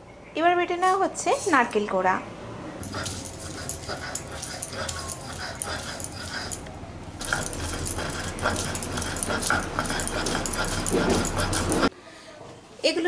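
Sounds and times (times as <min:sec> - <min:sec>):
stone-on-stone grinding scrape: 0:02.8 - 0:06.6, 0:07.2 - 0:11.9.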